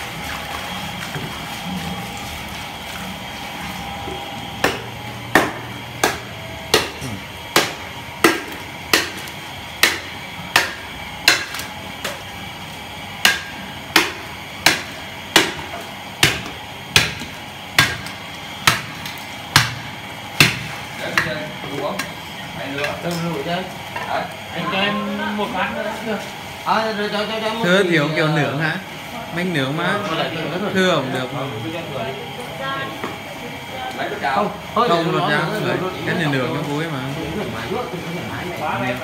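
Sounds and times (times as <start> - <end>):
cleaver chopping carcass: 4.6 - 12.3, 13.2 - 21.4.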